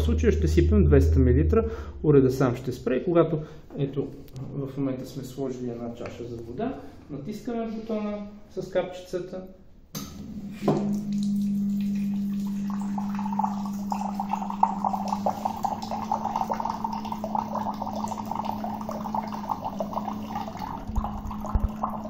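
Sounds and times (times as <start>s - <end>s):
water dispenser humming: 10.0s - 22.0s
water stream splashing into glass: 10.7s - 22.0s.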